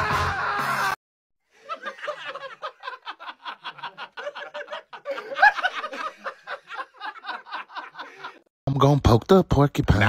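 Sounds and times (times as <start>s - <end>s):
stuttering snickering laughter: 1.6s - 8.4s.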